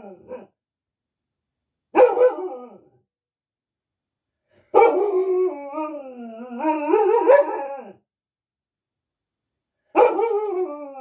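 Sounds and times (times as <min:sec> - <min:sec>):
dog howling: 0:04.8 - 0:08.0.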